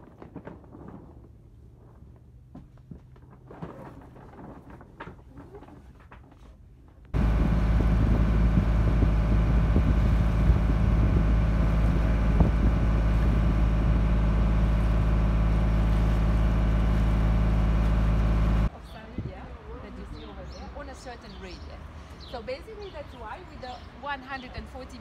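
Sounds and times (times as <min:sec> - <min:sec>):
boat engine droning: 0:07.2 - 0:18.7.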